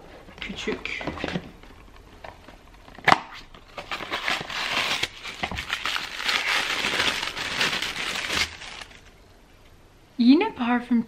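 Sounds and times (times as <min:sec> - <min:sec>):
tissue paper rustling: 0:03.7 - 0:09.2.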